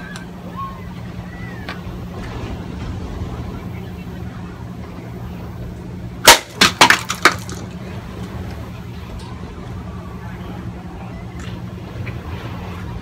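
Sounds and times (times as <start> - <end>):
sword hitting plastic bottle: 6.3 - 7.6
pieces clattering on wooden deck: 6.3 - 7.7.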